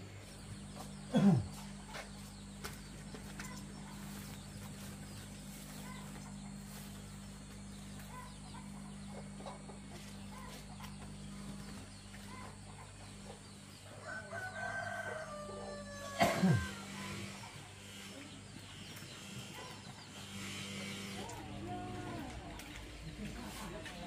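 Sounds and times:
rooster crowing: 0:14.0 - 0:17.4.

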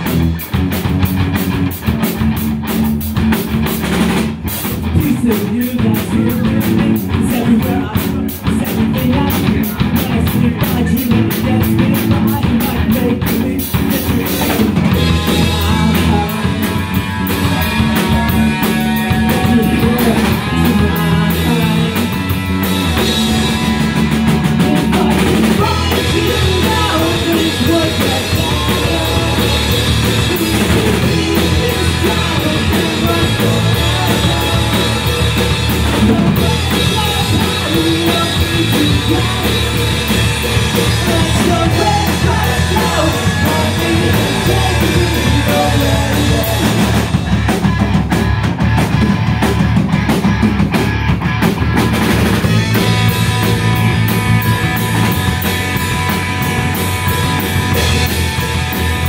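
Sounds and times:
bass guitar: 0:00.0 - 0:59.0
drum kit: 0:00.0 - 0:59.0
electric guitar: 0:00.0 - 0:59.0
person singing: 0:04.8 - 0:47.2.

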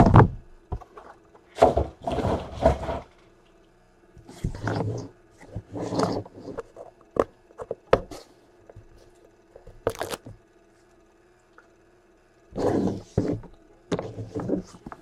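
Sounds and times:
rustling scrape: 0:01.6 - 0:03.2, 0:12.6 - 0:14.9
scrape on metal case: 0:04.3 - 0:06.7, 0:12.6 - 0:14.8.

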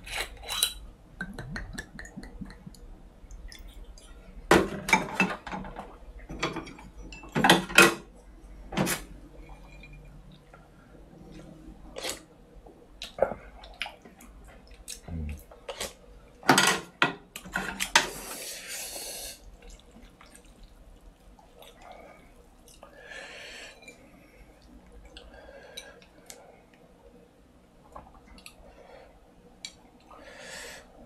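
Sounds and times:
broth sloshing and dripping: 0:19.4 - 0:22.9.

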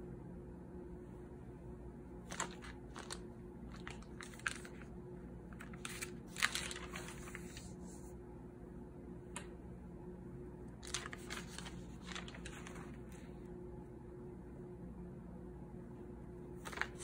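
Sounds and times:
notebook page rustling: 0:02.2 - 0:04.9, 0:05.5 - 0:08.1, 0:10.8 - 0:13.4, 0:16.6 - 0:17.0.

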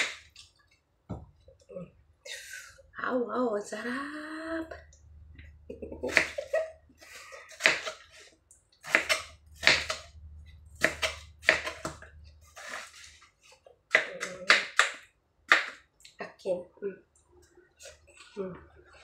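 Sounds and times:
knife chopping watermelon on board: 0:08.8 - 0:10.1, 0:10.8 - 0:12.0, 0:13.9 - 0:15.8.

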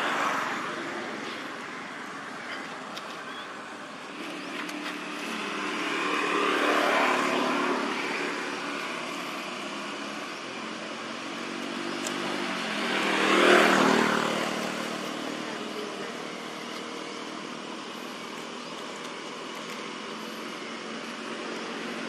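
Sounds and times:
vehicles passing by: 0:00.0 - 0:22.0.

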